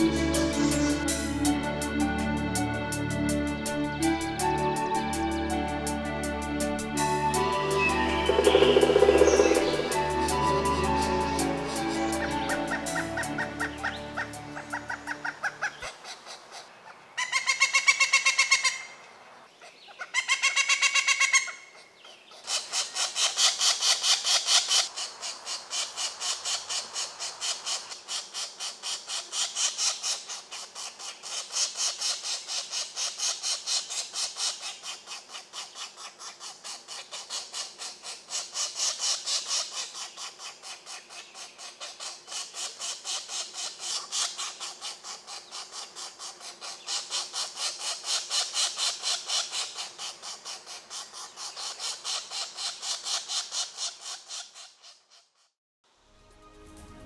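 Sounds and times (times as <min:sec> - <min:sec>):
woodpecker nestlings begging: 0:07.0 - 0:16.5, 0:22.3 - 0:55.0.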